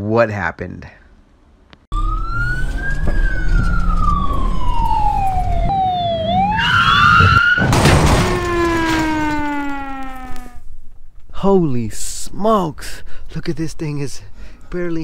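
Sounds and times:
police siren wailing: 1.9s - 10.7s
falling tone: 1.9s - 11.0s
crash with breaking glass: 7.6s - 10.2s.

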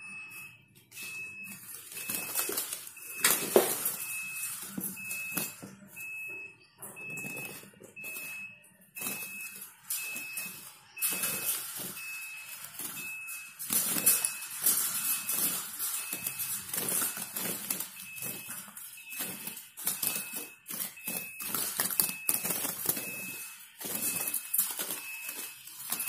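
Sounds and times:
wire cage rattling: 7.0s - 26.0s
birds fluttering: 7.1s - 26.0s.

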